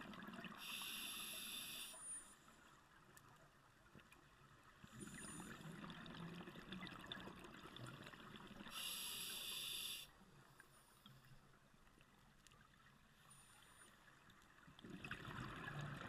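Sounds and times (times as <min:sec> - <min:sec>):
regulator inhalation hiss: 0:00.6 - 0:02.0, 0:08.7 - 0:10.1.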